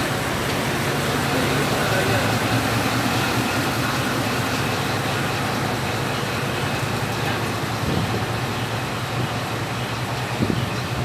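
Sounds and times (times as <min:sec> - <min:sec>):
diesel locomotive engine running: 0:00.0 - 0:11.0.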